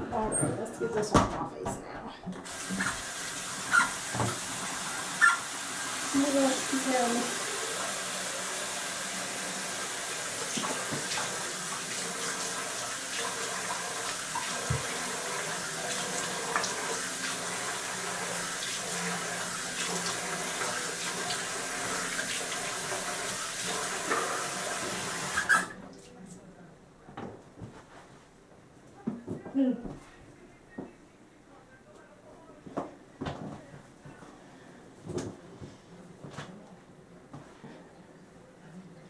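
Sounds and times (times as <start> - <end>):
sink tap running: 2.4 - 25.8.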